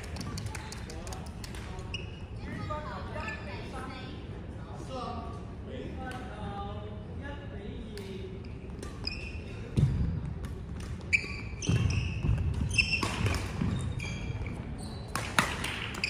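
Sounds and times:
shoe squeaks: 1.8s - 3.8s, 8.4s - 10.0s, 11.0s - 15.2s.

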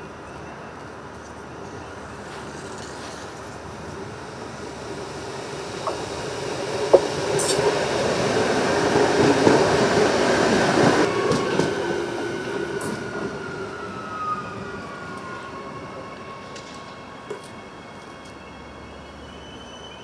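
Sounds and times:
electric train passing: 0.0s - 20.0s.

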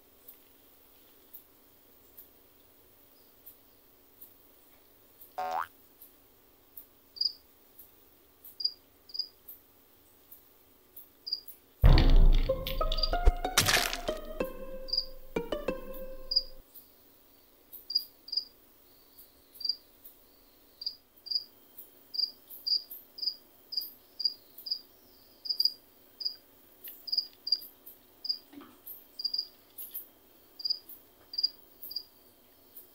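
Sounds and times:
insect chirping: 5.1s - 5.7s, 7.1s - 9.7s, 11.2s - 11.5s, 12.7s - 32.9s.

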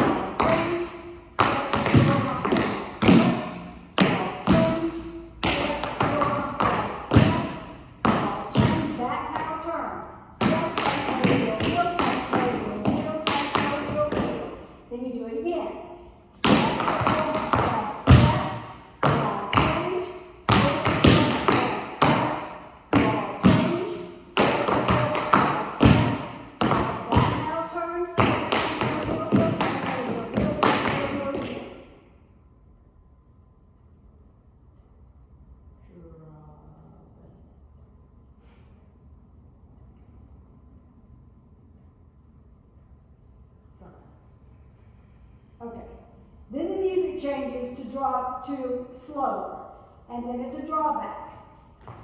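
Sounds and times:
tap shoes on wooden floor: 51.8s - 52.0s.

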